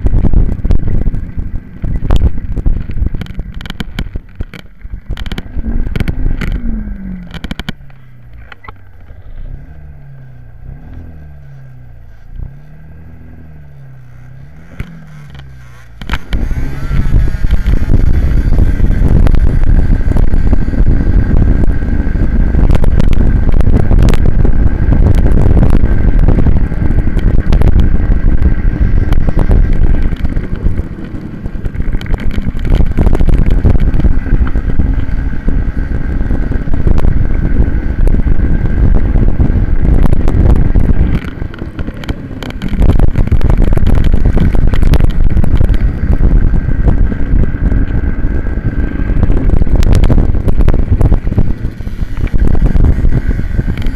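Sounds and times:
wind buffeting microphone: 0.0s - 53.9s
small racing engine droning: 5.1s - 53.9s.

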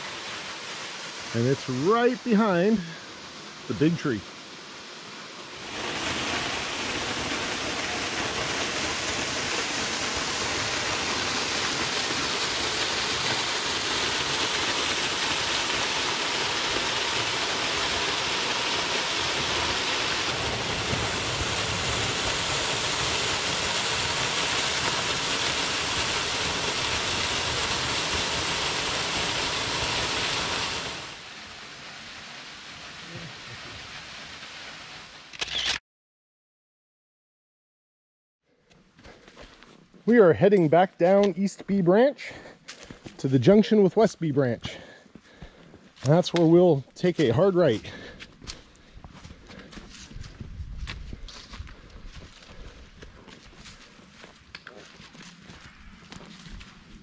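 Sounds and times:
waterfall splashing on boulders: 0.0s - 35.3s.

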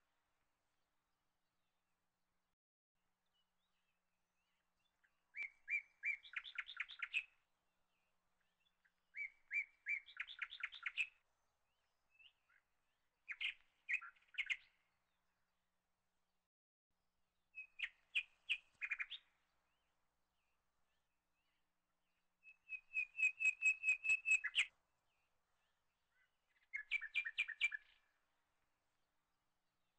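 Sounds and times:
songbird singing: 3.1s - 15.6s, 17.5s - 28.7s.

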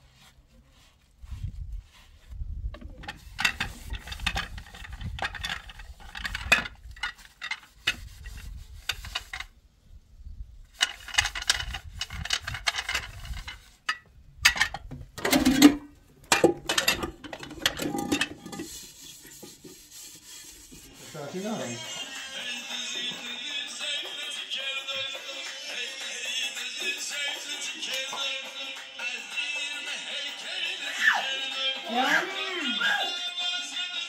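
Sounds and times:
dishes and utensils clinking: 12.0s - 18.7s.

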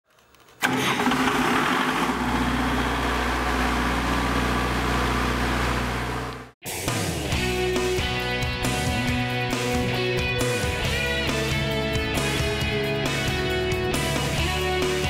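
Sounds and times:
diesel generator running: 0.6s - 6.6s.

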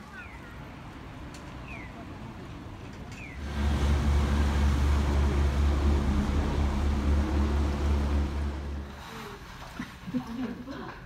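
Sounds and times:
engine humming: 0.0s - 9.5s.

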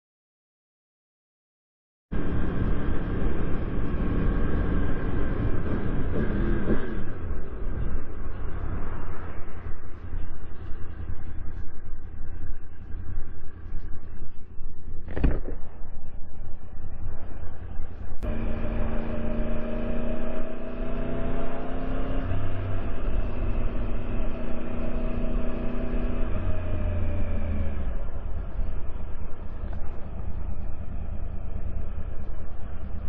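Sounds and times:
wind rumble on microphone: 2.1s - 33.0s
motorcycle engine running: 2.2s - 14.2s, 16.6s - 33.0s
short thud: 15.1s - 15.6s.

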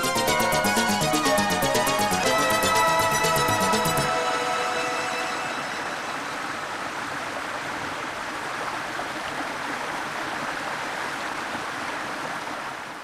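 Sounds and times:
waterfall rushing: 2.8s - 9.0s.

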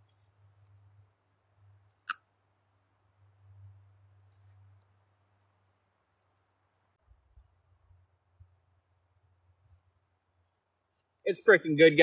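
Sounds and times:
faint small crackles: 0.0s - 2.4s, 3.4s - 8.7s, 9.4s - 11.3s
low steady hum: 0.0s - 11.9s.

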